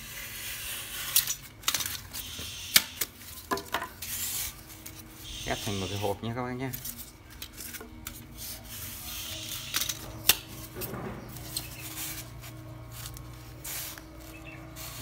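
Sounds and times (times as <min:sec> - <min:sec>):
air pump humming: 0:00.0 - 0:15.0
styrofoam scraping and knocking: 0:06.8 - 0:15.0.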